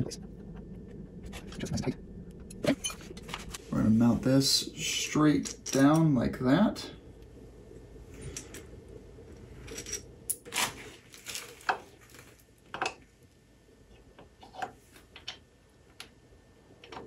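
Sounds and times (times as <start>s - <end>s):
small metal parts clinking: 9.6s - 10.5s.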